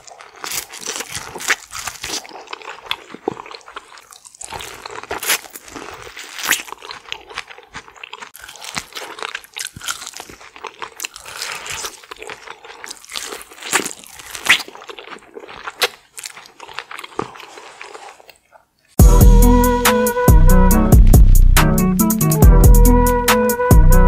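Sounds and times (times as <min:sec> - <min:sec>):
wet chewing crunches: 0:00.0 - 0:19.0.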